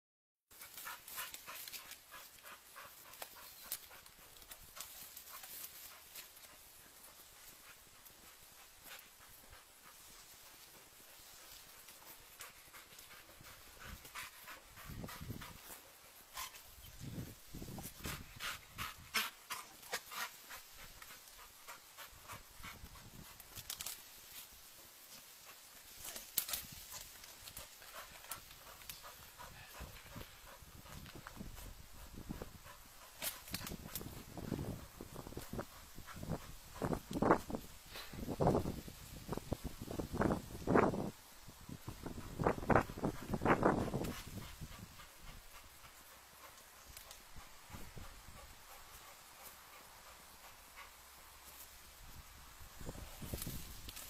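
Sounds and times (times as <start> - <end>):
dog panting: 0.6 - 23.4, 26.9 - 38.1, 42.0 - 51.6.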